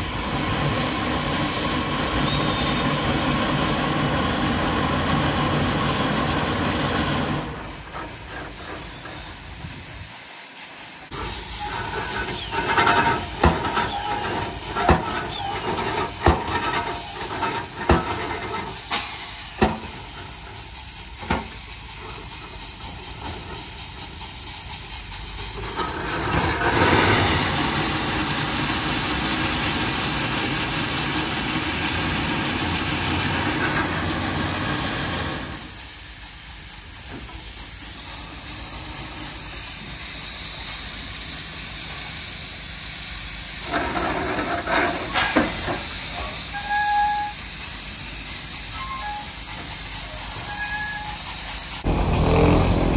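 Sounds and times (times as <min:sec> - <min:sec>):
hiss of escaping steam: 0:00.0 - 0:52.9
metal knocks and clanks: 0:12.1 - 0:20.2.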